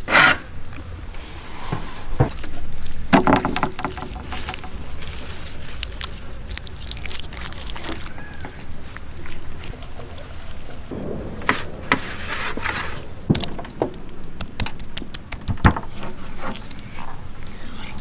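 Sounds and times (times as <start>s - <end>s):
low steady rumble: 0.5s - 17.6s
soft knocks: 3.1s - 5.1s.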